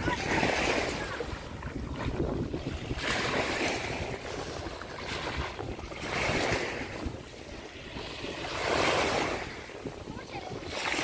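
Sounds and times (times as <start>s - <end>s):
waves breaking on sandy shore: 0.0s - 11.0s.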